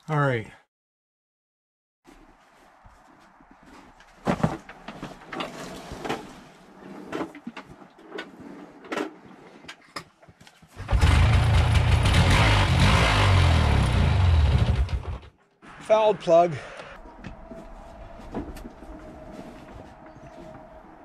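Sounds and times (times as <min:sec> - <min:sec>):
atv engine running unevenly: 0:10.8 - 0:15.2.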